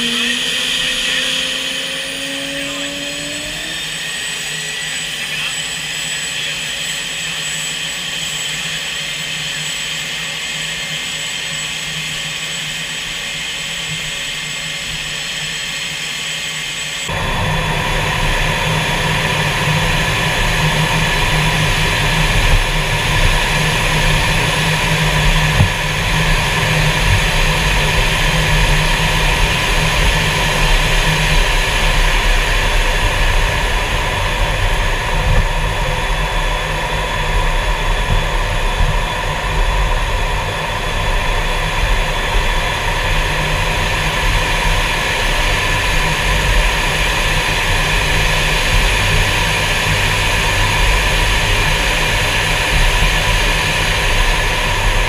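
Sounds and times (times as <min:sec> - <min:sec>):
jet engine whine: 0:00.0 - 0:55.0
deep rumble: 0:17.1 - 0:55.0.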